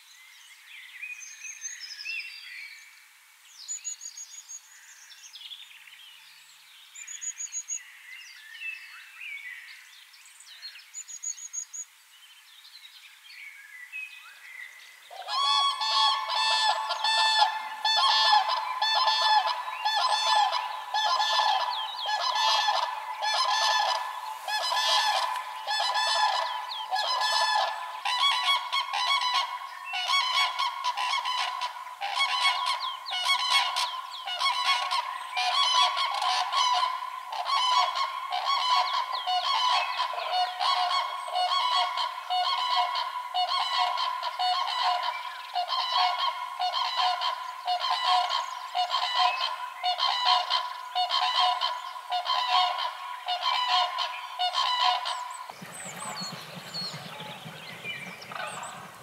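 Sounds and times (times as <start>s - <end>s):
cranes trumpeting calls: 15.1s - 59.0s.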